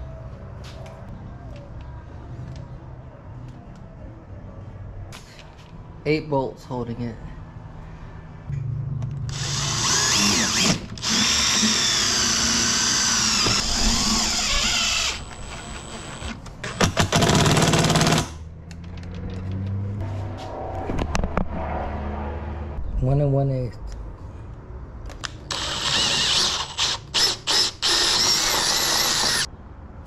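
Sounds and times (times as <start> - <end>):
power driver running screws: 9.3 - 18.3, 25.5 - 29.5.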